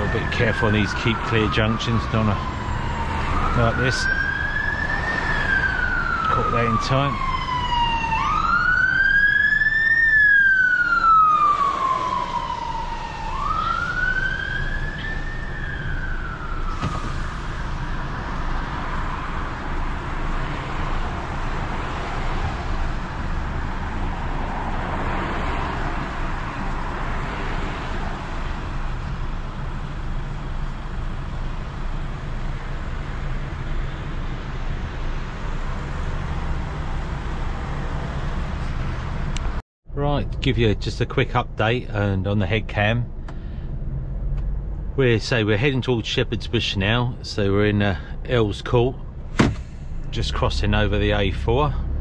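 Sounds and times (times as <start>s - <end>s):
siren wailing: 0.0s - 24.2s
truck engine and road noise: 0.0s - 52.0s.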